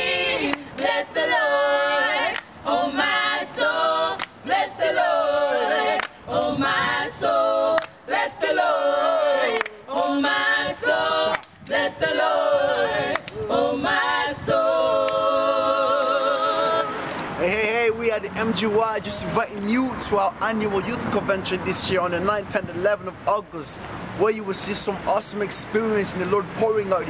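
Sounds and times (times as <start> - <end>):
group singing a cappella: 0.0 - 17.4.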